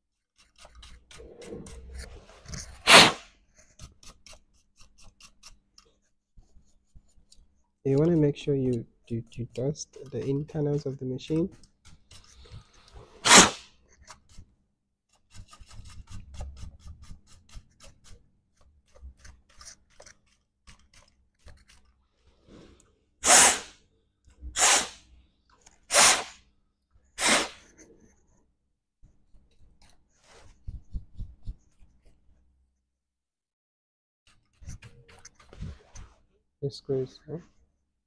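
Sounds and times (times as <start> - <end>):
bursts of blown air: 23.2 - 23.7, 24.6 - 25.0, 25.9 - 26.4, 27.2 - 27.6.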